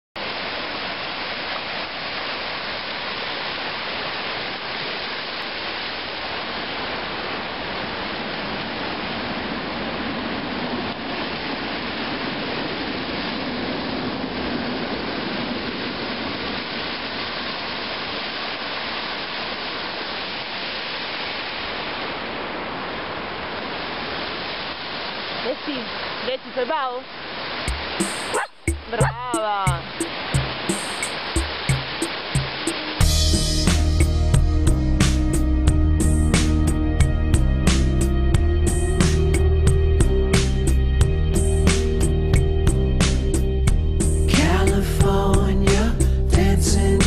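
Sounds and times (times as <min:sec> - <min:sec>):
sea waves breaking on beach: 0:00.2 - 0:34.0.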